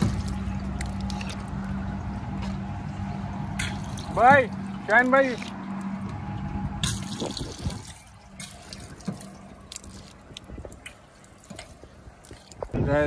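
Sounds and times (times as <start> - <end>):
water splashing into metal basin: 0.0 - 1.7, 3.4 - 6.1, 6.8 - 12.7
water drips: 0.0 - 12.8.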